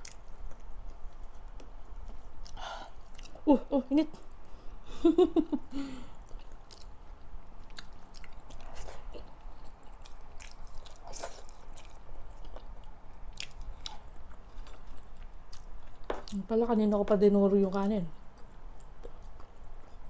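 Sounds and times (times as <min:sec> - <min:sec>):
person chewing food: 0:00.0 - 0:03.5, 0:06.1 - 0:16.4, 0:18.2 - 0:20.0.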